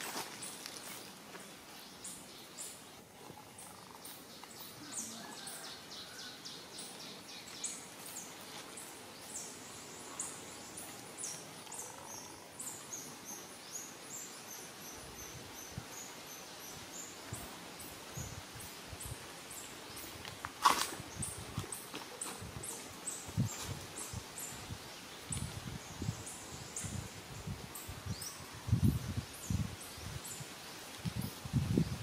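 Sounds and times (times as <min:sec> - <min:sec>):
faint outdoor hiss: 0:00.0 - 0:32.0.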